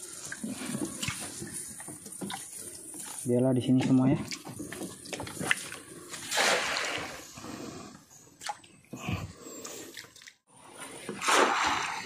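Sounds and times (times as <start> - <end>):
water splashing: 0.0 - 7.5, 11.0 - 12.0.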